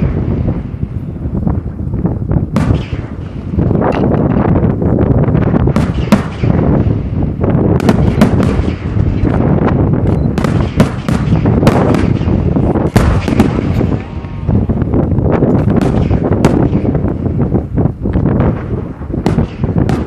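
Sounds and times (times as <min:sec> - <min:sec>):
fireworks booming: 0:00.0 - 0:20.0
sharp fireworks cracks: 0:00.0 - 0:20.0.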